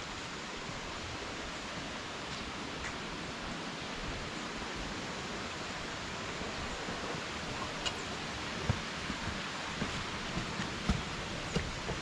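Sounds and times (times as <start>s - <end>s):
waterfall and stream rushing: 0.0s - 12.0s
footsteps on dirt: 6.8s - 12.0s.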